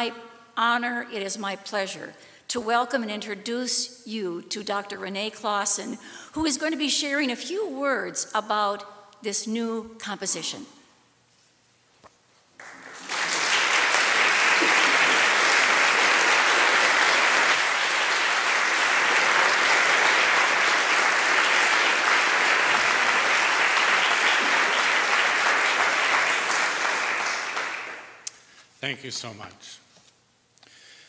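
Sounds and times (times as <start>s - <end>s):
audience applauding: 12.6s - 28.2s.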